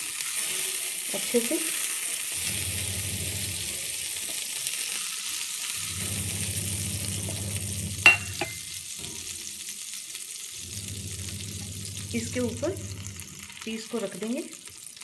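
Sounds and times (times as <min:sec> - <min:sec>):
steel bowl clinking on counter: 0:08.1 - 0:08.7.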